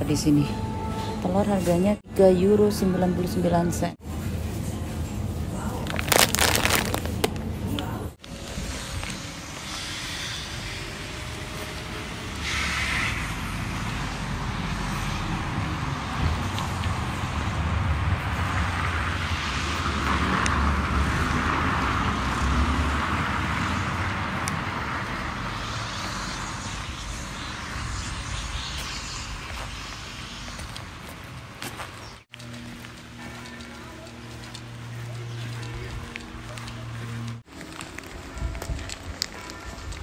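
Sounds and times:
street noise: 0.0s - 40.0s
car passing: 8.7s - 37.5s.

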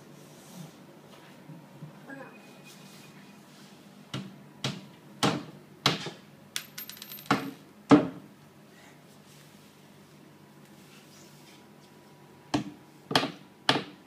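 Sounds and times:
hammer striking wood: 12.5s - 14.0s.

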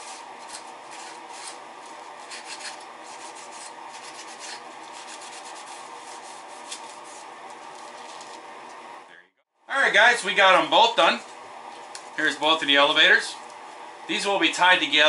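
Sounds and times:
paper towel rubbing wood: 0.0s - 8.4s.

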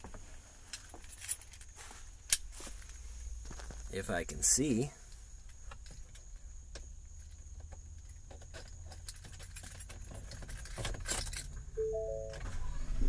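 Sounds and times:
keys jangling: 0.7s - 1.7s, 8.6s - 11.6s
electronic beep: 11.8s - 12.4s.

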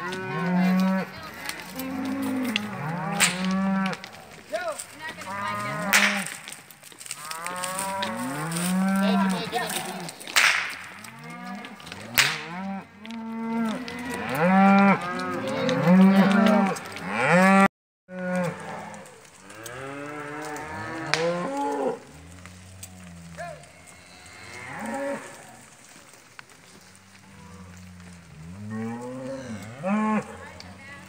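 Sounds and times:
cows mooing and bawling: 0.0s - 10.3s, 10.9s - 31.0s
whip crack: 3.1s - 3.6s, 5.9s - 6.4s, 10.2s - 10.9s, 12.1s - 12.5s.

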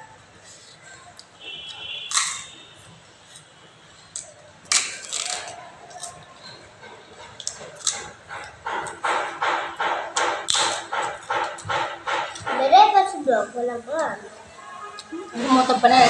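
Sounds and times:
mouth clicks and smacks chewing: 4.1s - 12.6s.

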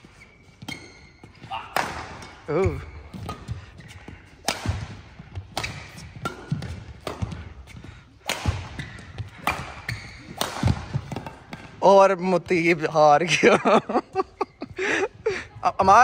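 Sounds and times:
rackets striking shuttlecock: 0.6s - 11.8s.

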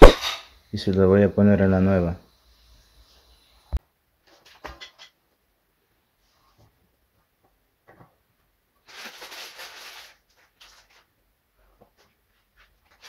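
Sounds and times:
fibre rustling: 8.8s - 13.0s.

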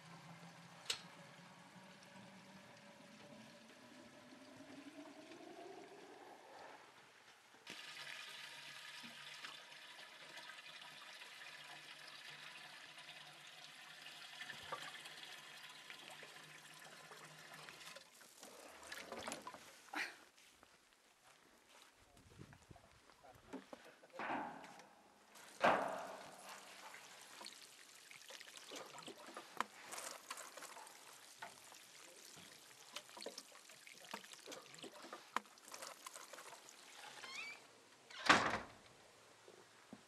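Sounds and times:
water running from hose into container: 0.0s - 6.2s, 7.6s - 19.7s, 25.4s - 37.6s
watering can splashing in barrel: 7.6s - 19.7s, 25.3s - 37.2s.

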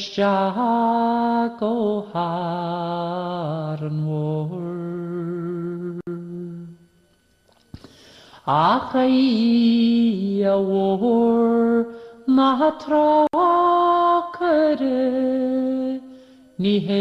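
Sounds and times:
person singing long held notes: 0.0s - 6.8s, 8.4s - 17.0s.

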